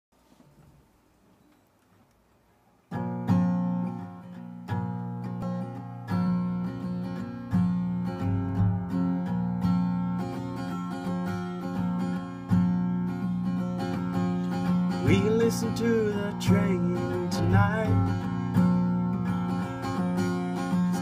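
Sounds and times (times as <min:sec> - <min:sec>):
acoustic guitar strumming chords: 0:02.9 - 0:21.0.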